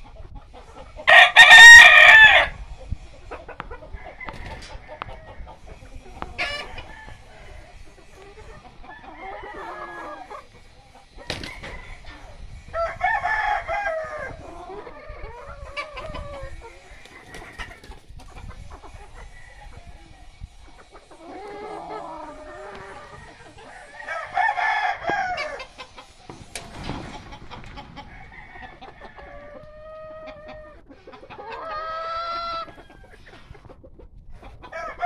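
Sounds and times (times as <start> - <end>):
chickens clucking: 0.0 - 35.0
rooster crowing: 1.1 - 2.6, 3.9 - 5.4, 6.4 - 7.8, 8.9 - 10.3, 12.8 - 14.4, 21.5 - 25.7, 28.0 - 30.8, 34.7 - 35.0.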